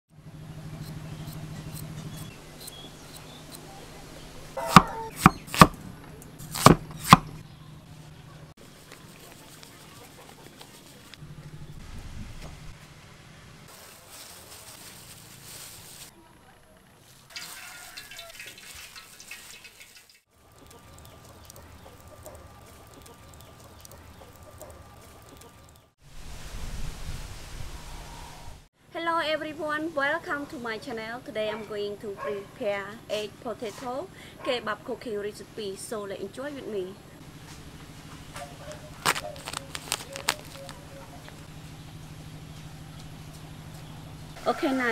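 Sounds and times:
small birds chirping: 0:00.2 - 0:11.8, 0:20.4 - 0:26.0, 0:36.8 - 0:44.4
chickens clucking: 0:03.1 - 0:05.4, 0:20.4 - 0:25.9, 0:37.7 - 0:41.5
knife chopping on wooden board: 0:04.6 - 0:05.8, 0:06.5 - 0:07.4.

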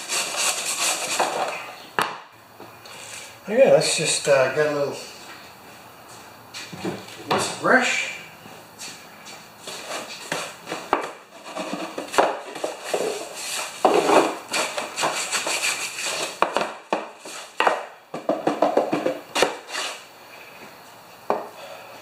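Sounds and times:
brush scrubbing: 0:00.0 - 0:01.7, 0:12.9 - 0:16.4.

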